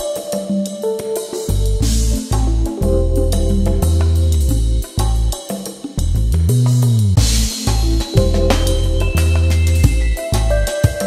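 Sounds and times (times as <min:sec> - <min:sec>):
drum kit: 0:00.0 - 0:11.0
deep sustained bass notes: 0:01.7 - 0:05.3, 0:06.0 - 0:10.6.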